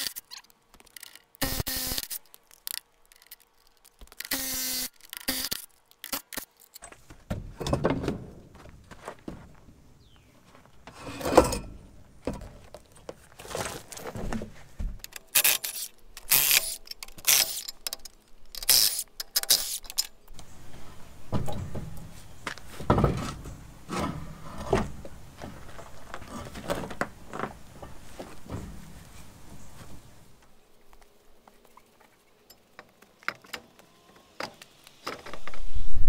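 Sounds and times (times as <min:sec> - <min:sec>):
sharp metallic noises: 0:00.0 - 0:06.9, 0:15.1 - 0:20.3.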